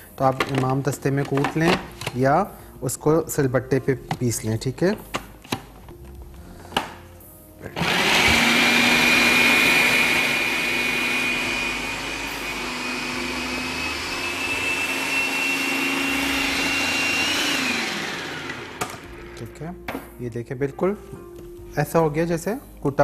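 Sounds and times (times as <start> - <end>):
food processor motor whining: 7.8 - 19.5.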